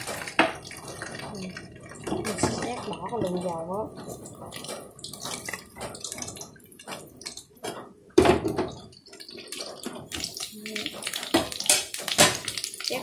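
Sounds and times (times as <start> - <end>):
hot oil trickling and dripping: 0.0 - 7.6, 8.7 - 13.0
oil crackling: 0.0 - 7.6, 8.9 - 13.0.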